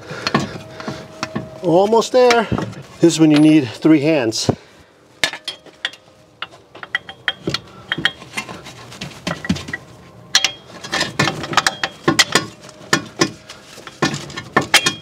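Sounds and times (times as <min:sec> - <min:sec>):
metal clinks and knocks: 0:05.2 - 0:15.0.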